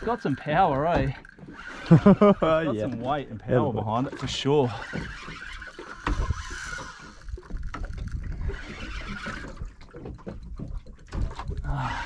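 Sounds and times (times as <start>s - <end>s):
water noise: 0.0s - 12.0s
wind: 0.0s - 12.0s.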